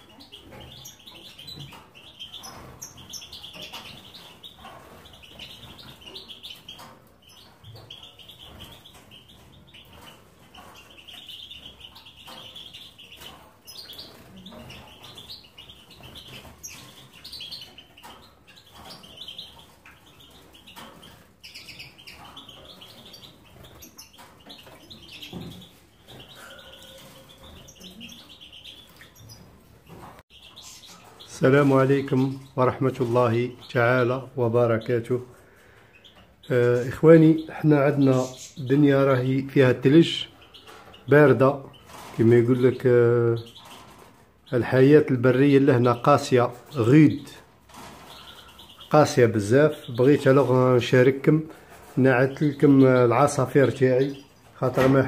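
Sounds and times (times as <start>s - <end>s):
caged birds chirping: 0.0s - 55.0s.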